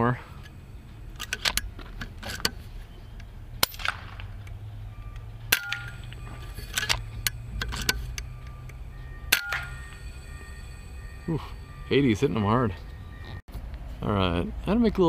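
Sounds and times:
air rifle shot: 0:03.6 - 0:04.2.

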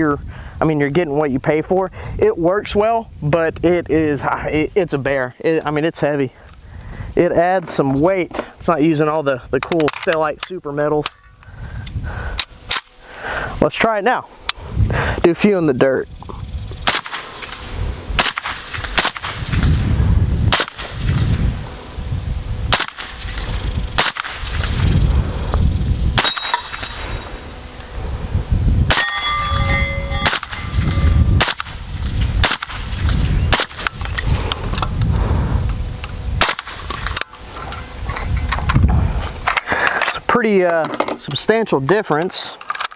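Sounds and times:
suppressed rifle shots: 0:16.8 - 0:17.6, 0:18.2 - 0:19.6, 0:20.5 - 0:21.2, 0:22.7 - 0:23.4, 0:24.0 - 0:24.8, 0:26.2 - 0:27.0, 0:28.9 - 0:29.2, 0:30.2 - 0:30.8, 0:31.4 - 0:31.8, 0:32.4 - 0:34.1, 0:36.4 - 0:37.2
low rumble: 0:18.8 - 0:39.3
brief ringing tone: 0:29.0 - 0:31.2.

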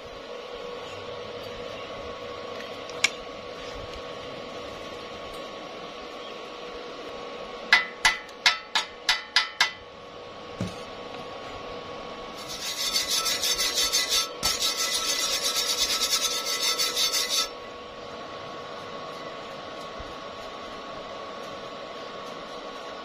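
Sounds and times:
chipping hammer tapping steel: 0:07.7 - 0:09.8
wire brush scrubbing weld: 0:12.3 - 0:17.6.

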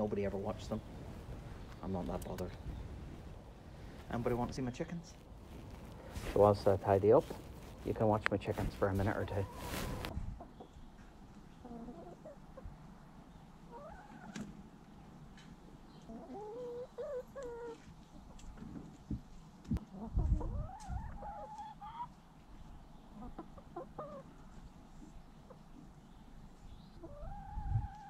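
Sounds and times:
hens clucking: 0:06.0 - 0:12.8, 0:13.6 - 0:14.5, 0:16.0 - 0:18.4, 0:19.8 - 0:26.1, 0:27.0 - 0:28.0.

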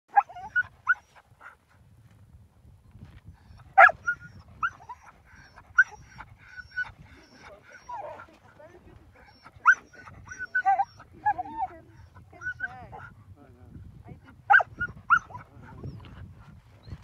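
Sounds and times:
dogs yelping and whining: 0:00.1 - 0:01.2, 0:03.4 - 0:08.4, 0:09.1 - 0:13.1, 0:14.5 - 0:16.2.

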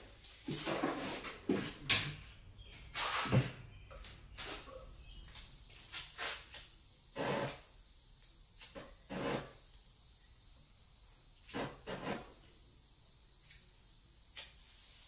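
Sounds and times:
objects rustling on a workbench: 0:00.2 - 0:03.6.

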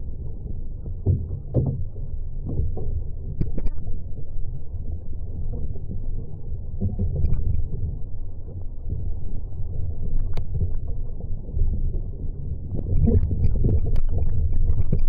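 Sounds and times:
wind and water rumble: 0:00.0 - 0:15.0
small ticks: 0:10.2 - 0:10.5, 0:12.9 - 0:15.0.

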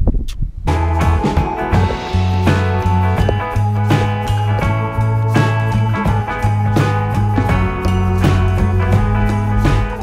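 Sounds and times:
wind buffeting microphone: 0:00.0 - 0:05.2
background music: 0:00.7 - 0:10.0.

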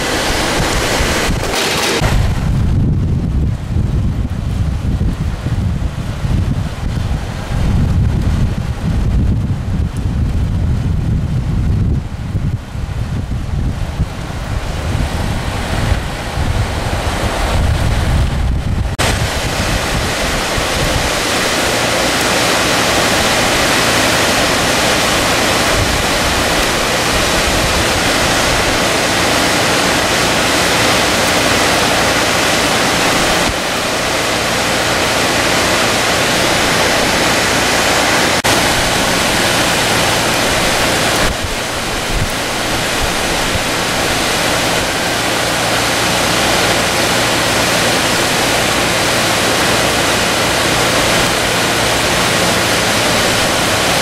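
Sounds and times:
floodwater rushing: 0:00.0 - 0:54.0
wind buffeting microphone: 0:00.0 - 0:54.0.

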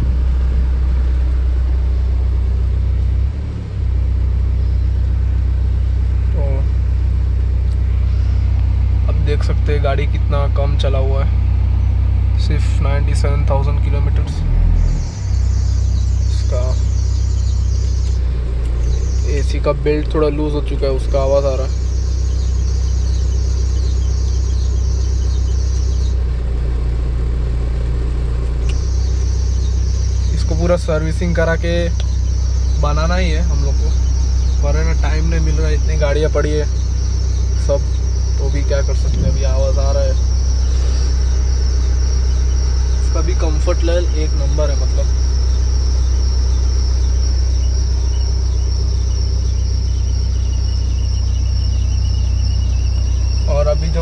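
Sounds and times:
car engine idling: 0:00.0 - 0:54.0
high-pitched whine: 0:00.0 - 0:54.0.

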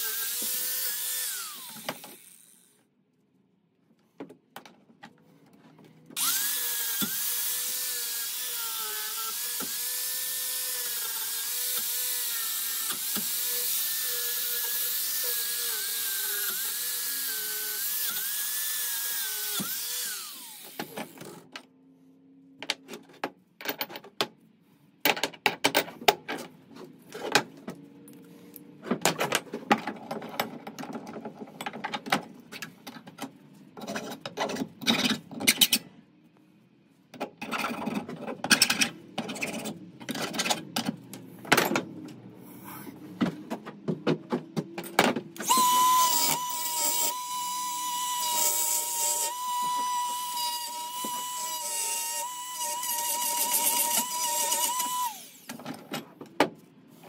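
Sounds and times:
angle grinder whine: 0:45.4 - 0:55.6.

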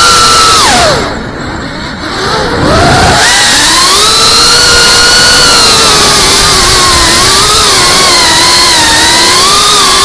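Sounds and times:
drone motors whining: 0:00.0 - 0:10.0
wind noise: 0:00.0 - 0:10.0.

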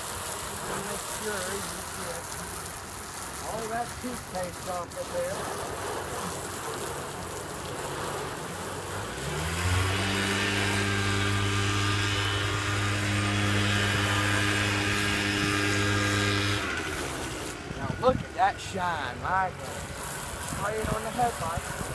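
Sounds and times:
hose spraying water on car: 0:00.0 - 0:21.9
low mechanical hum: 0:00.0 - 0:21.9.

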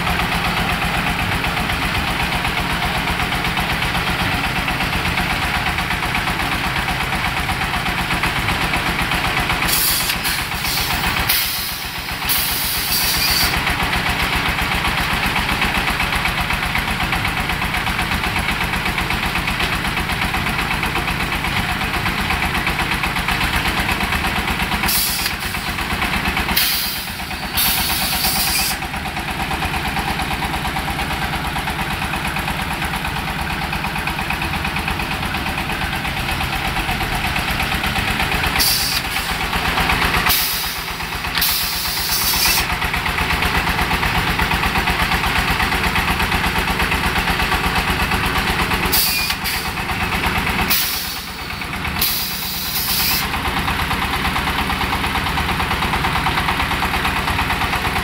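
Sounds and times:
diesel engine running: 0:00.0 - 0:58.0
hissing bursts: 0:26.6 - 0:28.9.

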